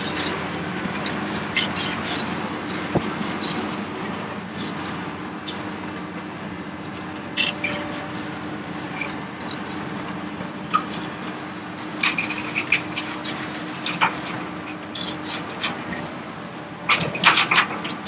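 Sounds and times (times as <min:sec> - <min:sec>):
short high squeaks: 0:00.0 - 0:05.7, 0:06.8 - 0:10.1, 0:10.7 - 0:16.7
excavator diesel engine running: 0:00.0 - 0:18.0.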